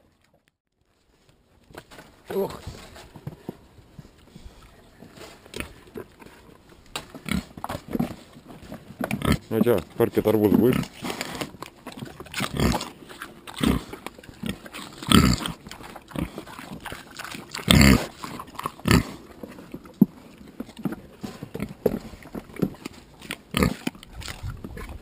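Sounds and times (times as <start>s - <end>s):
pigs grunting: 5.4s - 25.0s.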